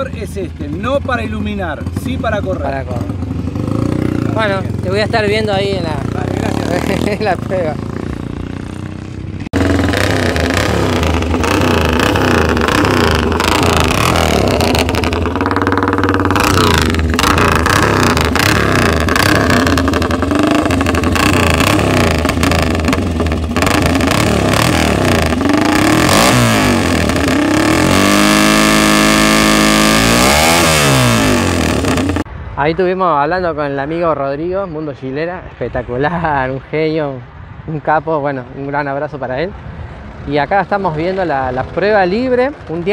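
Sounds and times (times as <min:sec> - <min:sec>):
motorcycle engines revving hard: 0:00.0 - 0:32.3.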